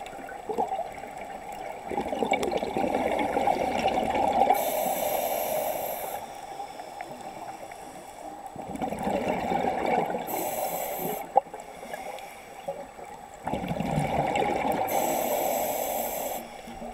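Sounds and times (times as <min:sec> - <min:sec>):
exhale bubbling: 0:01.8 - 0:06.2, 0:08.6 - 0:12.0, 0:13.4 - 0:16.9
diver inhaling through regulator: 0:04.5 - 0:08.3, 0:10.3 - 0:12.7, 0:14.9 - 0:16.9.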